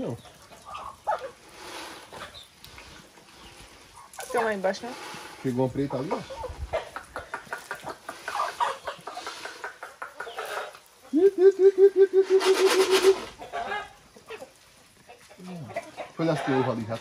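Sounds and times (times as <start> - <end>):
chickens clucking: 0.0 - 17.0
rapid repeated pitched calls: 6.0 - 14.5.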